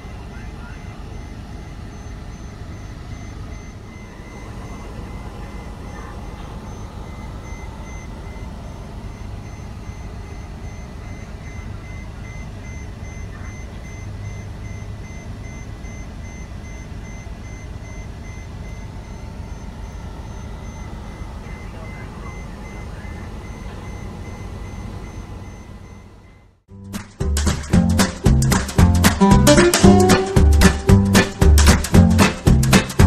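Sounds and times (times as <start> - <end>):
low rumble of ground equipment: 0.0 - 26.4
vehicle reversing alarm beeping: 0.0 - 26.6, 27.9 - 33.0.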